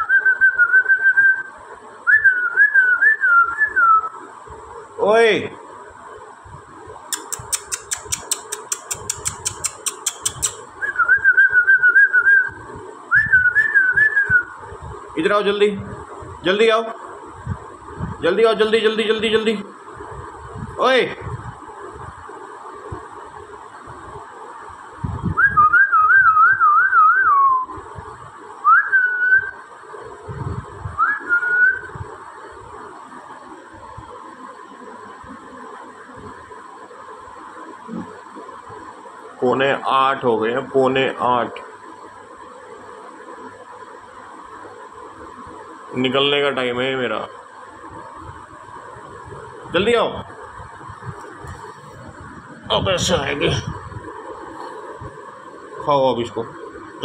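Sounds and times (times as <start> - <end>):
rapid sharp clicks: 7.2 - 10.6
person whistling trilled call: 28.6 - 29.6, 31.0 - 31.9.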